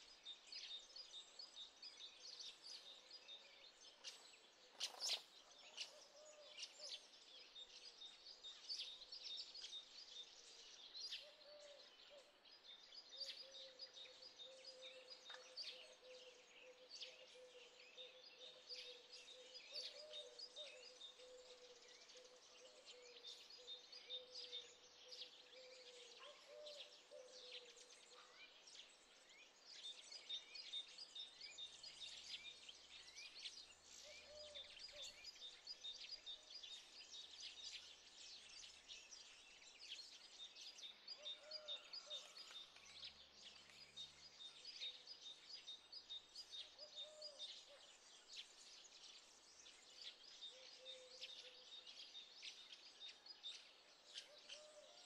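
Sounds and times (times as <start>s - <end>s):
small birds chirping and trilling: 0.0s - 55.0s.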